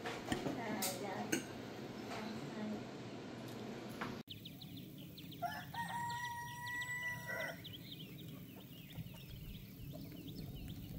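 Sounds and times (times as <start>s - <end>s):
birds chirping: 4.2s - 10.9s
rooster crowing: 5.4s - 7.7s.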